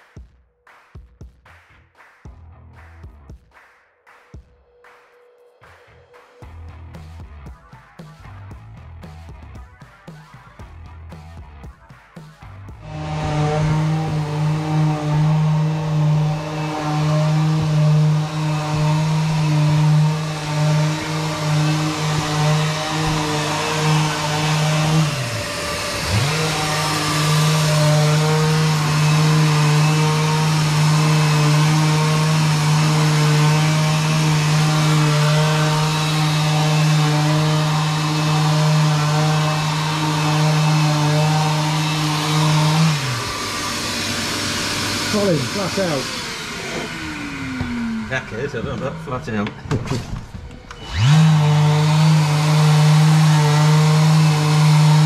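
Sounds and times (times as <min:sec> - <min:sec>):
power tool motor humming: 0:12.8 - 0:55.0.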